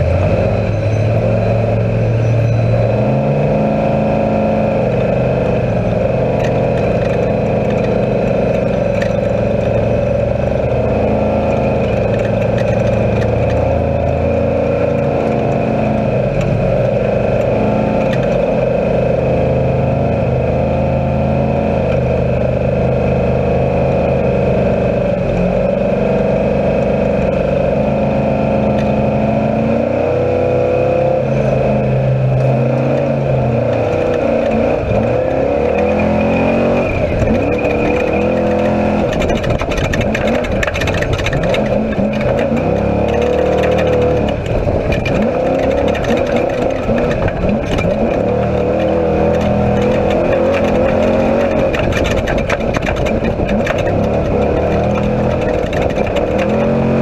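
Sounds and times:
race vehicle engine revving: 0.0s - 57.0s
rattles and knocks: 6.2s - 18.6s, 32.4s - 57.0s.

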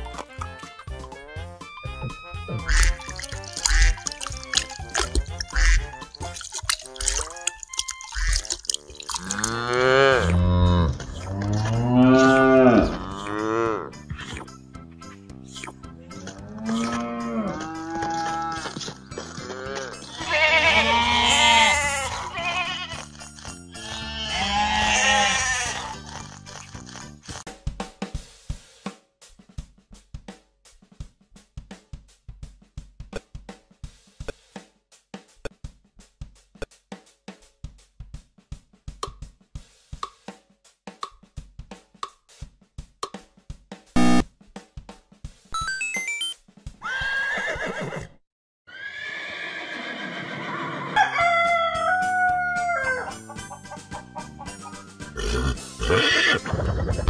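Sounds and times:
music with drum beat: 0.0s - 16.1s, 17.2s - 22.8s, 27.4s - 46.9s, 51.9s - 57.0s
sheep bleating: 9.2s - 13.4s, 19.4s - 26.2s
cow mooing: 9.2s - 14.0s, 16.2s - 18.7s
loud buzzer: 44.0s - 44.2s.

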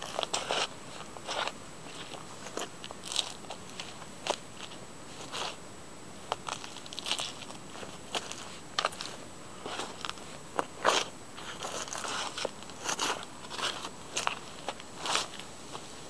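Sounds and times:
boots crunching vegetable peelings: 0.0s - 5.6s, 6.3s - 15.4s.

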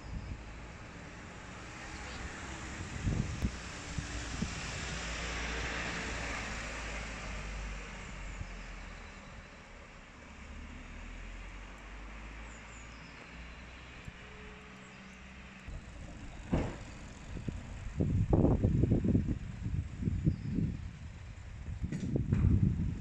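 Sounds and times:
steady traffic hum: 0.0s - 23.0s
vehicle passing: 0.4s - 8.9s, 10.2s - 19.7s.

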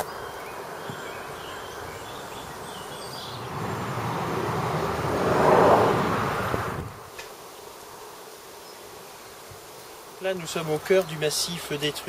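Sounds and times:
steady outdoor rush: 0.0s - 7.3s.

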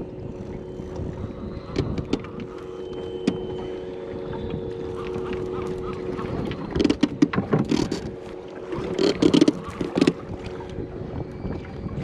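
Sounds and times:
wind on microphone: 0.0s - 12.0s
water slapping against boat hull: 4.3s - 10.8s.

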